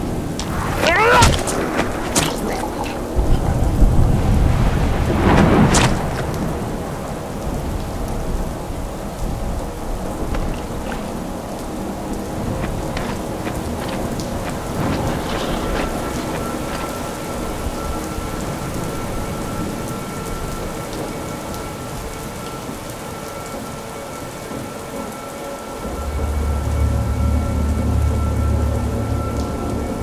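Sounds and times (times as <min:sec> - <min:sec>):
thunder rumbling: 0:00.0 - 0:22.8
steady rain falling: 0:00.0 - 0:30.0.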